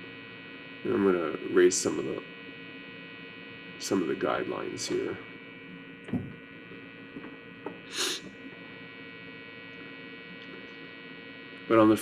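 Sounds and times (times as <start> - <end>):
electrical mains hum: 0.0 - 12.0
soft low thump: 6.1 - 6.4
short breathy hiss: 7.9 - 8.3.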